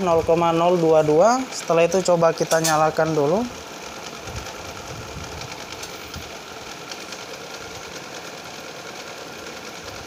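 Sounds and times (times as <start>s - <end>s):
small motor whirring: 3.0s - 10.0s.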